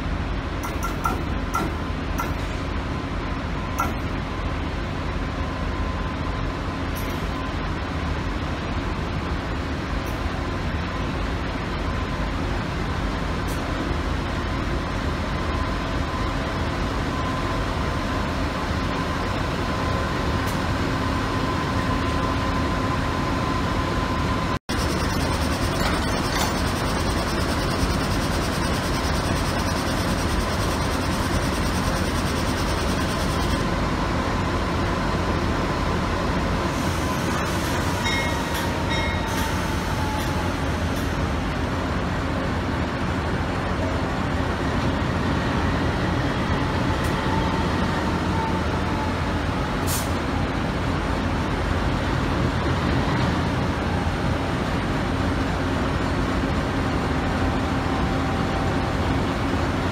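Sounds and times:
locomotive diesel engine running: 0.0s - 59.9s
faint wavering whine: 24.7s - 33.6s.

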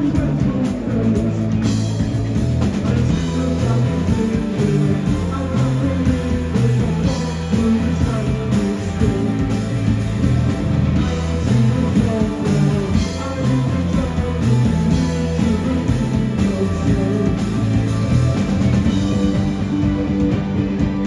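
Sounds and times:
man singing into microphone: 0.0s - 1.7s, 2.8s - 9.8s, 11.0s - 18.0s
bass guitar: 0.0s - 21.0s
drums playing steady beat: 0.0s - 21.0s
electric guitars: 0.0s - 21.0s.

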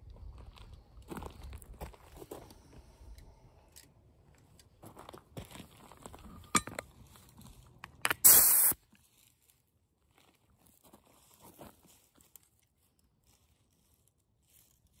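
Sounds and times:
compressed air hiss: 8.2s - 8.8s
faint air hose handling: 8.2s - 8.8s.

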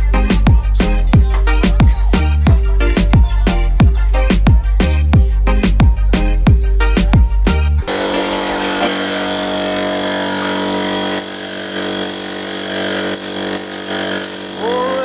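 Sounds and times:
air compressor humming: 5.1s - 15.0s
spray gun hissing: 7.9s - 15.0s.

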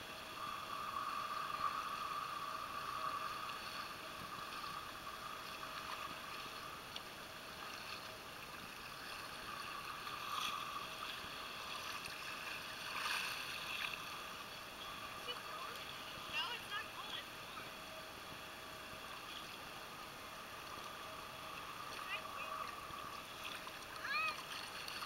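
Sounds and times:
faint steady hum: 0.0s - 25.0s
sea water lapping: 20.6s - 25.0s.

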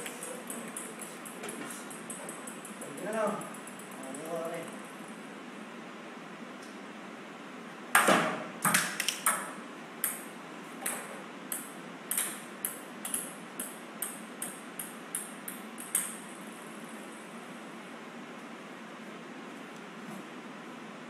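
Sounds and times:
plastic balls bouncing on floor: 0.0s - 4.4s, 8.0s - 10.2s, 10.8s - 16.3s.

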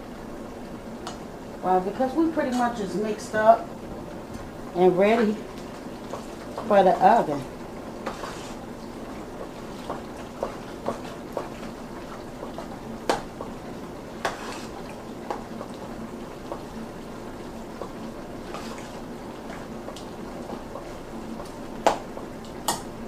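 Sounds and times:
spoon stirring wet food: 5.2s - 8.7s, 9.4s - 16.7s, 17.4s - 22.9s.

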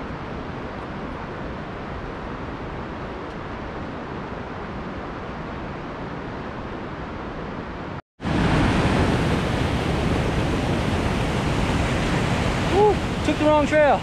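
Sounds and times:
mountain stream rushing: 0.0s - 14.0s.

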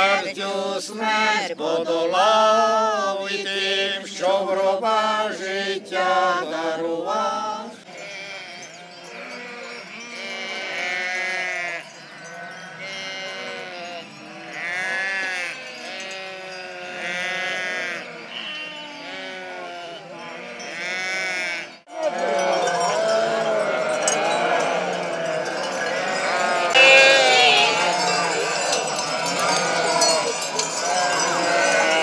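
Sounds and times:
sheep bleating: 7.8s - 32.0s.

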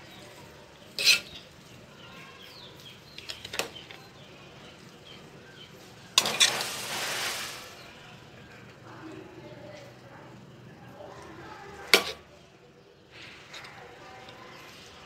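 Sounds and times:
rice rustling onto a plate: 6.2s - 8.0s.

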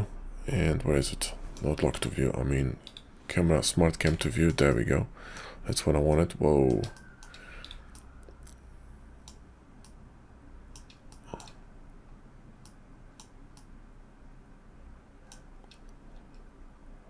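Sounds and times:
faint low hum: 0.0s - 17.0s
mouse and keyboard clicks: 2.8s - 3.1s, 6.1s - 8.5s.

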